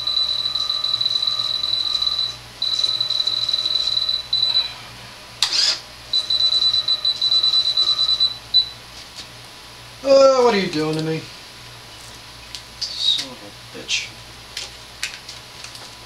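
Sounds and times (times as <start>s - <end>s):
transmitter beeping: 0.0s - 4.8s, 5.5s - 8.8s.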